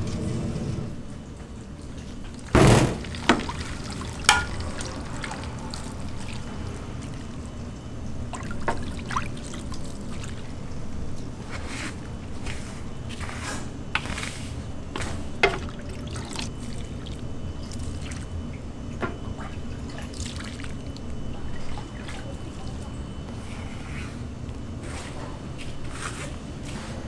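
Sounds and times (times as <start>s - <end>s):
heavy knock: 2.6s - 3.1s.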